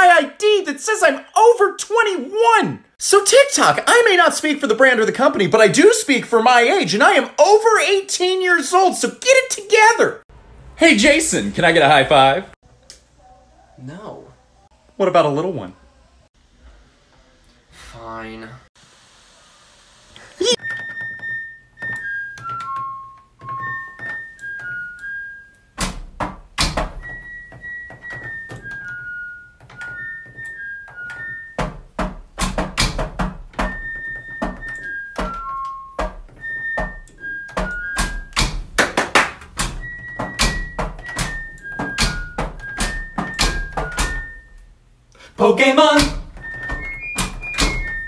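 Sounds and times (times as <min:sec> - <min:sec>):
electronic beeping melody: 0:33.7 - 0:38.3.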